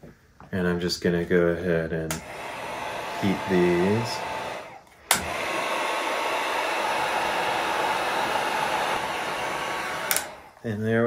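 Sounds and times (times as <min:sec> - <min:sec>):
heat gun switch click: 0:02.1 - 0:02.3, 0:04.3 - 0:05.5, 0:10.0 - 0:10.4
heat gun blowing: 0:02.1 - 0:10.7.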